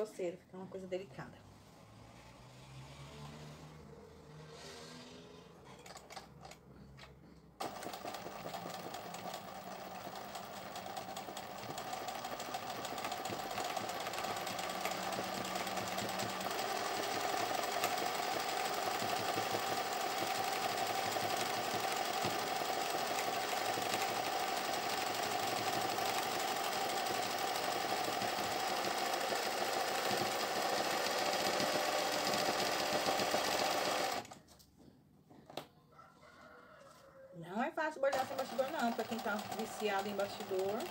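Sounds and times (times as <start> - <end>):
sewing machine running: 7.6 - 34.4, 38.0 - 40.9.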